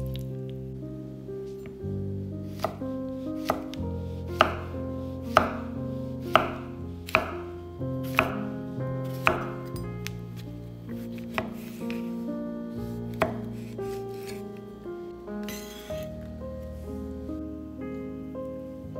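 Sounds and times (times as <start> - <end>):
soft background music: 0.0 - 18.9.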